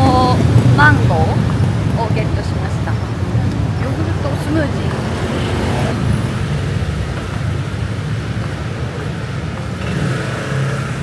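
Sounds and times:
city traffic rumble: 0:00.0 - 0:11.0.

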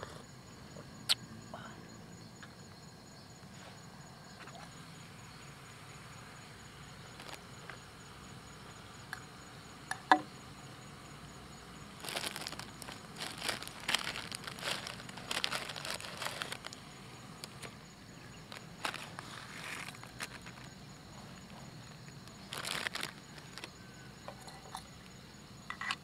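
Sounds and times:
plastic packet crinkling and tearing: 0:07.2 - 0:07.4, 0:12.0 - 0:16.8, 0:18.5 - 0:20.7, 0:22.3 - 0:23.7.

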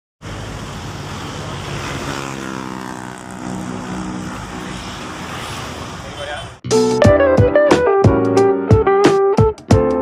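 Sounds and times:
diesel truck engine running: 0:00.2 - 0:01.8.

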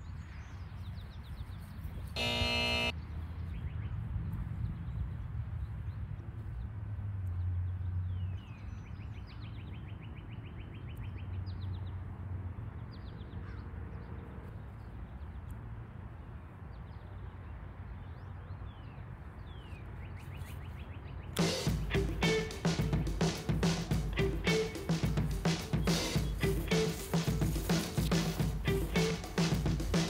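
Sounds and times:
wind rumble on microphone: 0:03.1 - 0:07.3
music: 0:21.4 - 0:30.0.

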